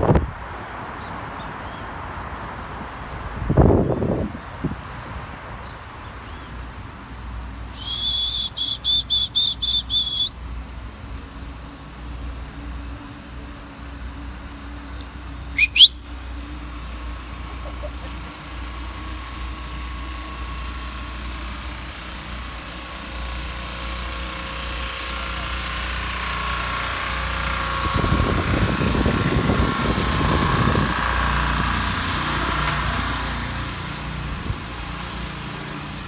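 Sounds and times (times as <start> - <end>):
wind rumble on microphone: 0.0 - 6.2, 27.4 - 32.3
quick rising whistles: 7.7 - 10.4, 15.5 - 16.1
short high-pitched whistle pips: 7.7 - 10.4, 15.5 - 16.0.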